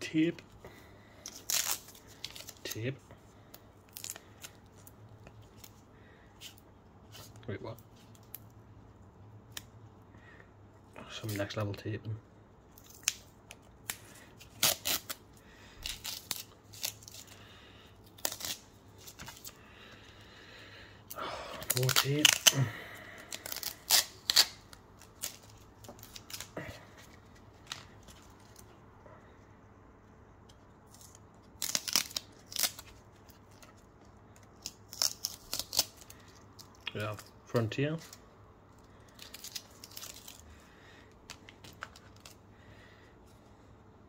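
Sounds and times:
tape peeling off plastic: 1.2s - 2.9s, 3.5s - 5.8s, 12.7s - 15.2s, 15.8s - 17.4s, 18.0s - 19.6s, 21.5s - 28.7s, 30.5s - 37.3s, 38.8s - 40.4s, 41.3s - 42.4s.

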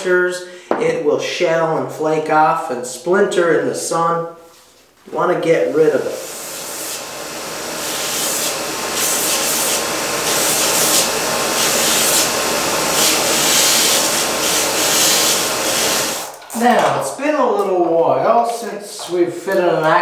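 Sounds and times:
belt grinder sanding wood: 6.1s - 16.3s.

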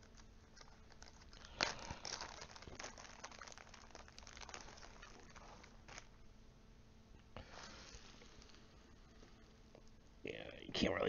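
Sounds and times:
packing paper rustling: 0.0s - 6.2s, 7.4s - 9.6s.

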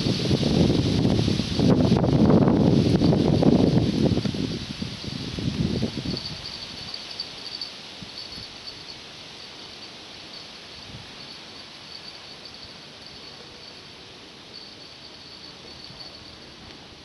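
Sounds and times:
wind buffeting microphone: 0.0s - 8.8s
crickets chirping: 0.0s - 17.0s.

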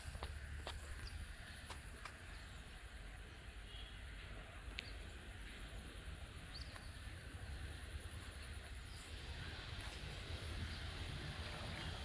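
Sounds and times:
faint bird chirp: 2.2s - 5.8s, 6.4s - 7.6s.

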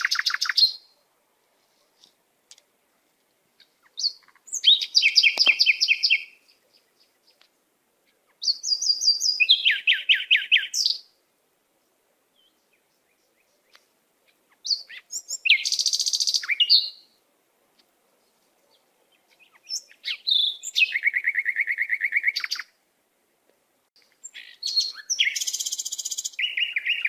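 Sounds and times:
songbird trilling: 0.0s - 1.0s, 3.6s - 7.4s, 8.1s - 11.1s, 12.4s - 17.2s, 18.7s - 22.7s, 24.2s - 27.0s.

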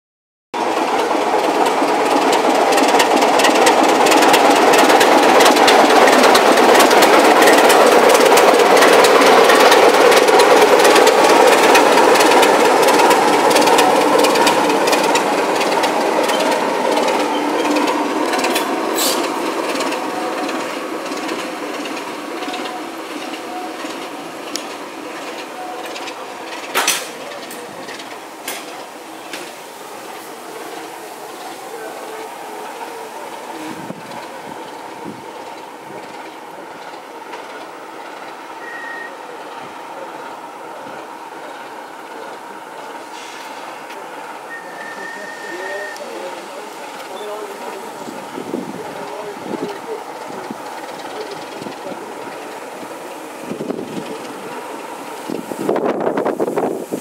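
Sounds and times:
diesel locomotive engine running: 0.6s - 57.0s.

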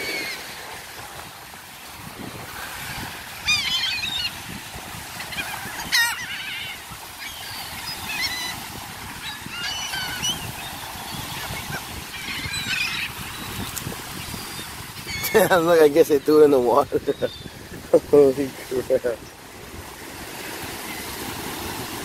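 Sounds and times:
seagulls squawking: 0.0s - 0.8s, 2.7s - 17.8s
surf and wind rush: 0.0s - 22.0s.

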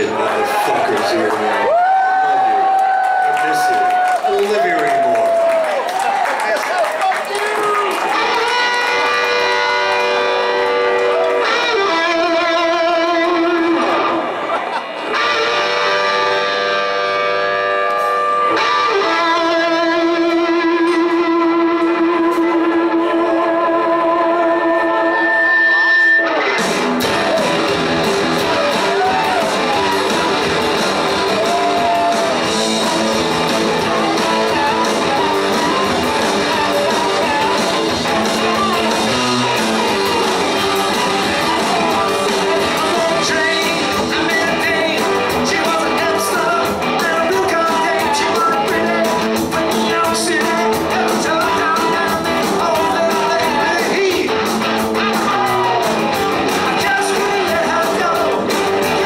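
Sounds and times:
electric guitars: 7.6s - 59.0s
bass guitar: 8.0s - 59.0s
drum kit: 25.8s - 59.0s.

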